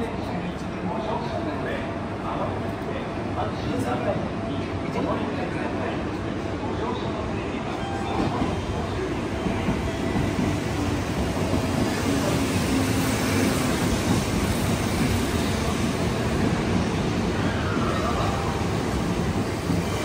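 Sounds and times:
train wheels rumbling on rail: 7.6 - 20.0.

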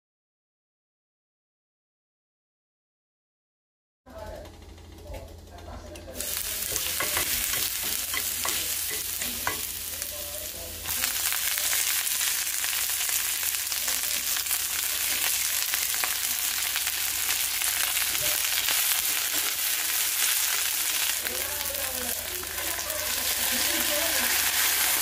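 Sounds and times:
food sizzling in hot oil: 6.2 - 25.0.

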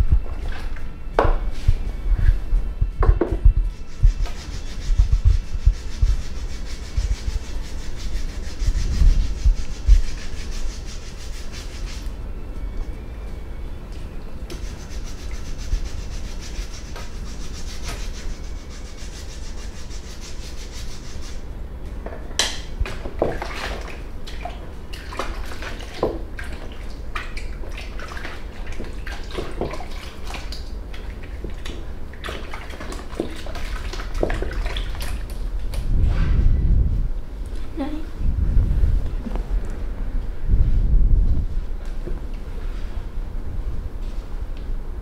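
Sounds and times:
low room hum: 0.0 - 45.0
rubbing on skin or hair: 3.6 - 12.2, 14.6 - 21.4.

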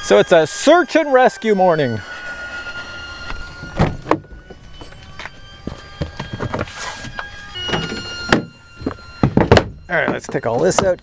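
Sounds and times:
faint high whine: 0.0 - 11.0
vehicle door being worked: 3.6 - 11.0
gear knocking and clunking: 5.6 - 11.0.

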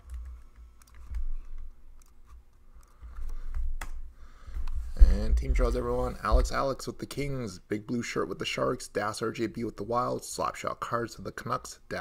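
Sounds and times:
mouse and keyboard clicks: 0.0 - 4.0
low steady hum: 0.0 - 12.0.

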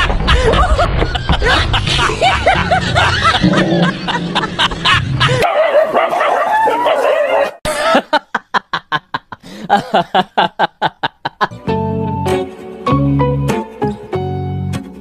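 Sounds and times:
dog yipping: 5.4 - 7.6.

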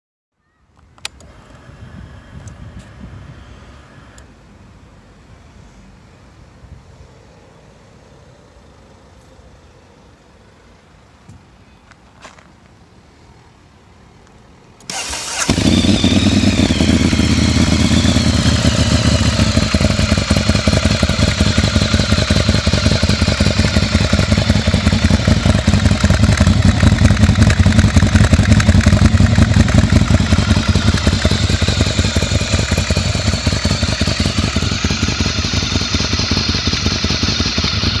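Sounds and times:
motorcycle starter cranking: 14.8 - 20.4
motorcycle engine idling: 14.9 - 38.0.

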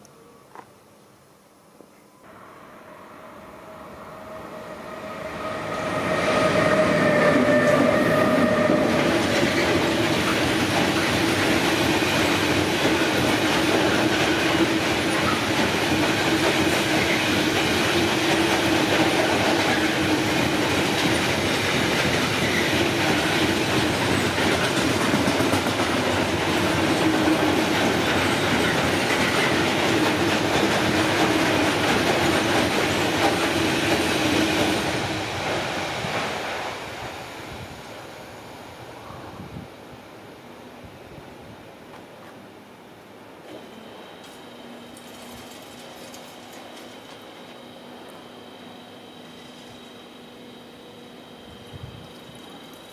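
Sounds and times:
freight train wheels rumbling on rail: 4.3 - 39.7, 43.2 - 52.9.

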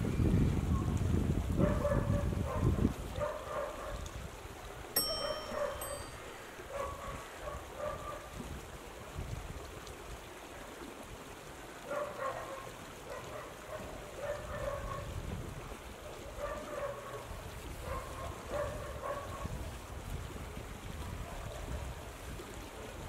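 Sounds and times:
wind rumble on microphone: 0.0 - 4.9, 6.7 - 10.3, 14.2 - 23.0.

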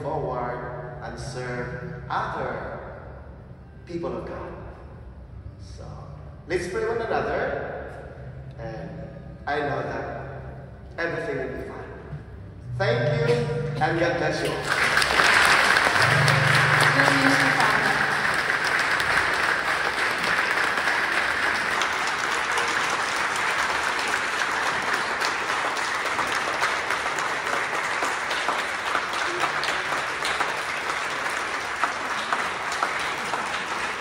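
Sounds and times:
audience applauding: 13.3 - 34.0.

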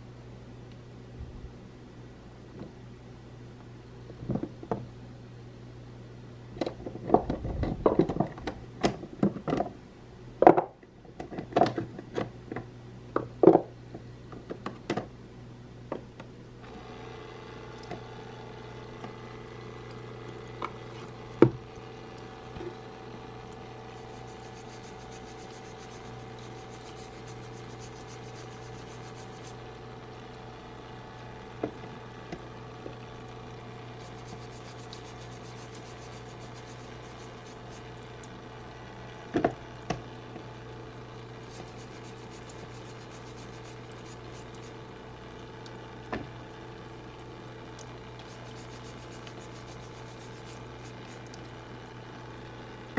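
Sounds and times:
small water pump humming: 15.8 - 52.9.

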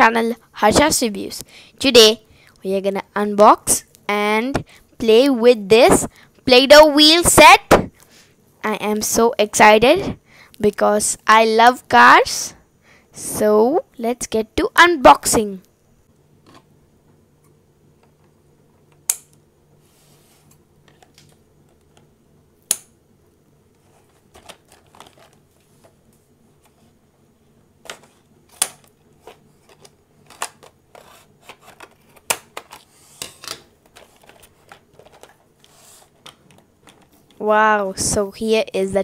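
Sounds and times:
packaging rustling: 23.8 - 25.9, 29.2 - 37.4.

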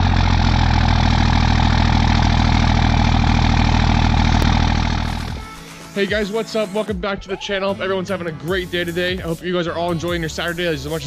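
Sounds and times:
diesel engine idling: 0.0 - 5.4.

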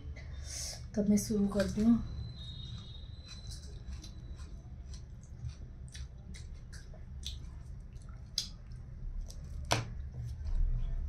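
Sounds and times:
wet mouth chewing clicks: 3.3 - 9.6.

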